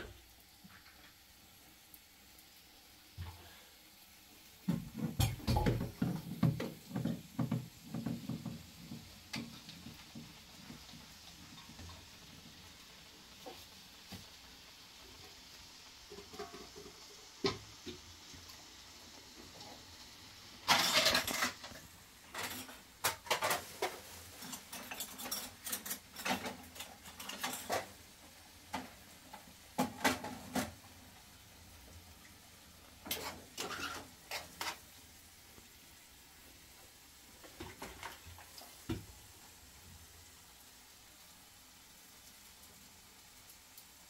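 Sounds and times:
pots and bowls knocking: 4.7s - 8.6s.

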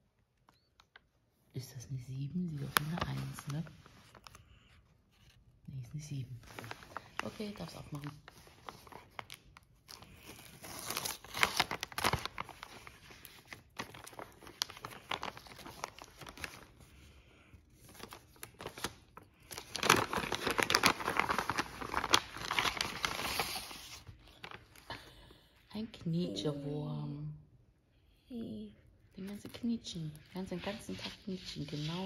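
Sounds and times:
wrapping paper crinkling and tearing: 2.6s - 4.5s, 6.3s - 17.0s, 17.7s - 25.0s.

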